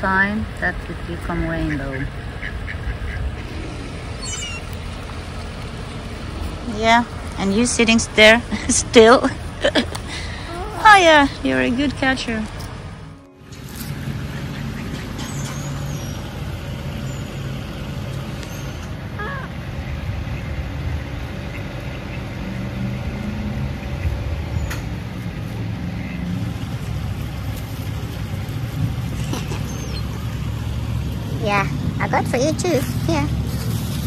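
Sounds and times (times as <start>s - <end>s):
low rumble of road traffic: 0.0s - 34.0s
faint bird chirps: 4.2s - 4.8s.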